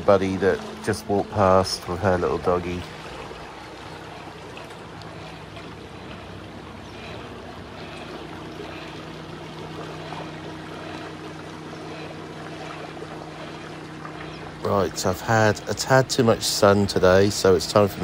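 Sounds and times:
boat engine humming: 0:00.0 - 0:18.0
rushing water: 0:00.0 - 0:18.0.

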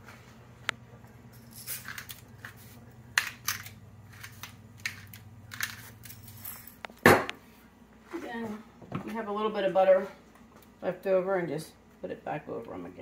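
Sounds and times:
pepper mill grinding: 0:01.3 - 0:06.9.

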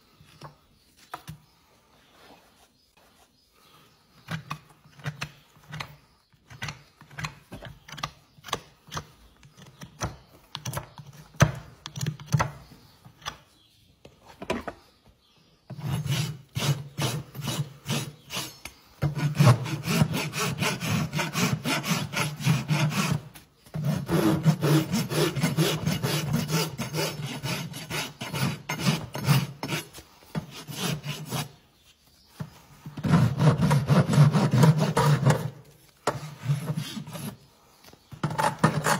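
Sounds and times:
rasp scraping a hoof: 0:15.7 - 0:38.9.

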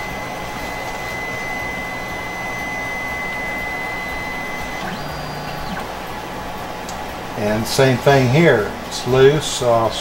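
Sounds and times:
printer fan noise: 0:00.0 - 0:10.0
stepper motors whining: 0:01.0 - 0:06.7.

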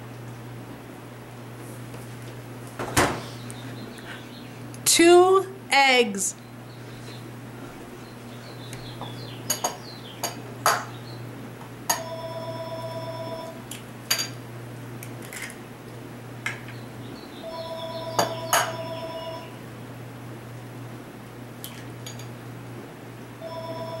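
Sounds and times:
clear ringing tone: 0:11.9 - 0:13.6, 0:17.4 - 0:19.6, 0:23.4 - 0:24.0.

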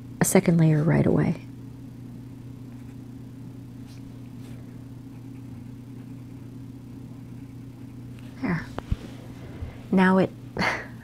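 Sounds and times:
low electrical hum: 0:00.0 - 0:11.0
pencil scratching on paper: 0:07.1 - 0:08.0.

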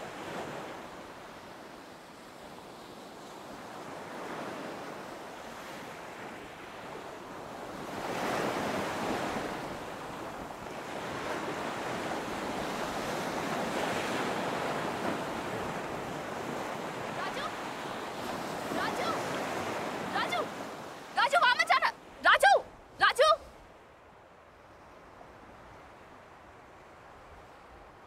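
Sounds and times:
waves breaking on beach: 0:00.0 - 0:28.0.

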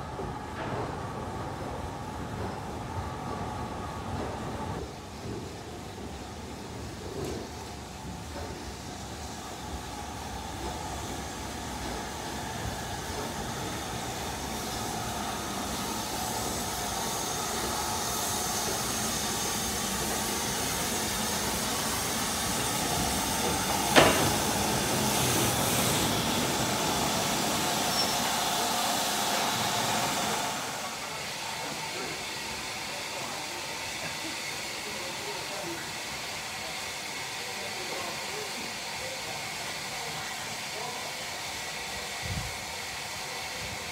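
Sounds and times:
steam locomotive passing slowly: 0:00.0 - 0:43.9
steam hissing: 0:06.4 - 0:43.9.

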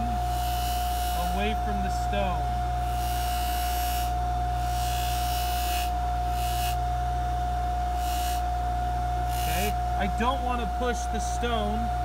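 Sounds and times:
ring hissing against buffing wheel: 0:00.0 - 0:07.0, 0:07.8 - 0:08.6, 0:09.2 - 0:10.0
polishing motor humming and whining: 0:00.0 - 0:12.0.

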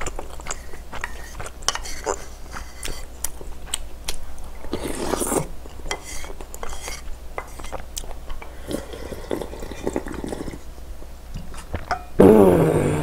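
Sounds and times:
chewing: 0:00.0 - 0:10.6
slurping soup: 0:00.5 - 0:03.1, 0:04.7 - 0:10.6.

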